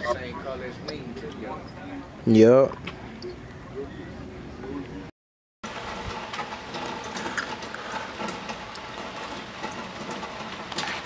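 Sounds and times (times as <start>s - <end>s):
rain drips and ticks: 5.7s - 11.0s.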